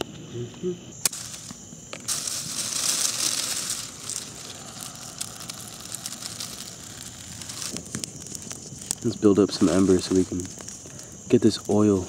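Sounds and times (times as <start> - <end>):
dry leaves crackling: 1.0 - 12.0
loud hissing rush: 1.0 - 12.0.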